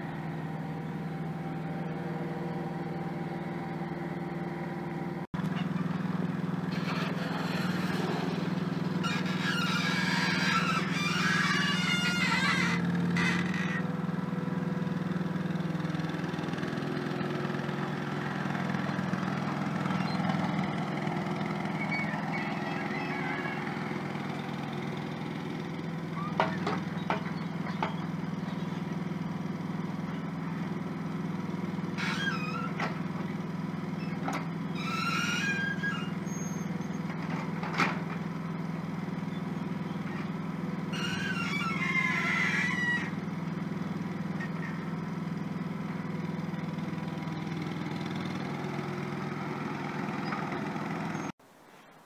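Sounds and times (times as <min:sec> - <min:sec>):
small diesel engine running: 0:00.0 - 0:51.4
brief high squeaks: 0:06.7 - 0:08.4, 0:09.0 - 0:13.8, 0:21.7 - 0:24.5, 0:32.0 - 0:32.9, 0:34.0 - 0:37.1, 0:40.9 - 0:43.1.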